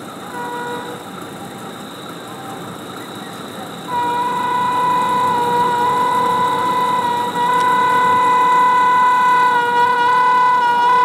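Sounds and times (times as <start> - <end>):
locomotive horn blast: 0.0 - 1.2, 3.8 - 11.0.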